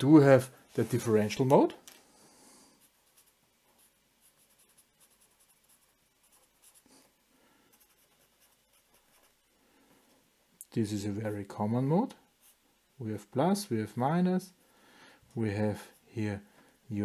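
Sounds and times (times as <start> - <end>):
felt-tip pen scratching paper: 2.8 - 6.9.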